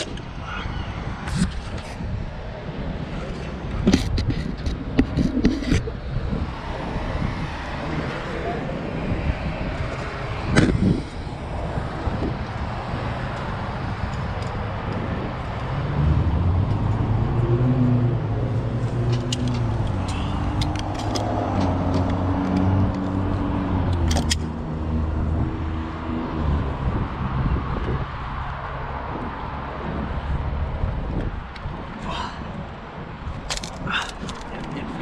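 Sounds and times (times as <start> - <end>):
wind rushing over microphone: 0.0 - 35.0
passing vehicle engine drone: 5.8 - 30.9
carabiner metallic clicks: 19.1 - 24.5, 33.4 - 34.8.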